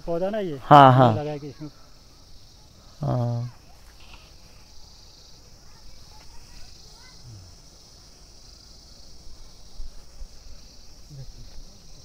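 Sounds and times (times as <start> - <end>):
insects trilling: 0.0 - 12.0.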